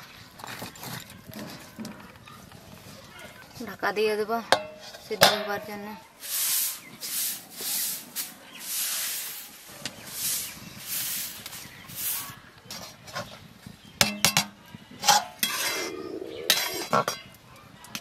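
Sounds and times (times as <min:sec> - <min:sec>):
broom sweeping cement floor: 0:06.2 - 0:13.3.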